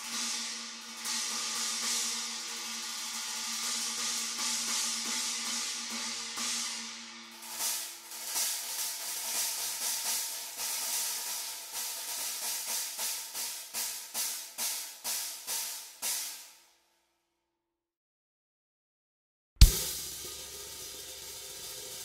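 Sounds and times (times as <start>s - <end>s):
cymbal crashes with drumsticks: 0.0s - 16.6s, 19.6s - 22.0s.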